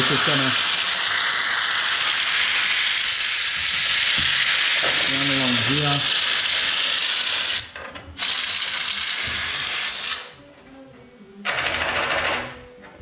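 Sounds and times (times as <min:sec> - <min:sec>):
spray gun hissing: 0:00.0 - 0:10.4.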